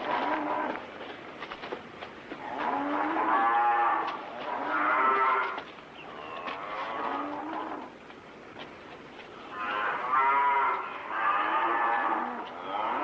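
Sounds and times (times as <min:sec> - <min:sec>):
cattle mooing: 0:02.4 - 0:05.6, 0:06.2 - 0:07.9, 0:09.5 - 0:13.0.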